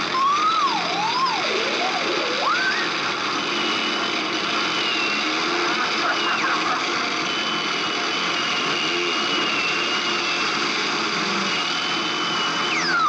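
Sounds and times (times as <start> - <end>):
thin high whine: 0.0 - 13.0
band playing distorted noise: 0.8 - 13.0.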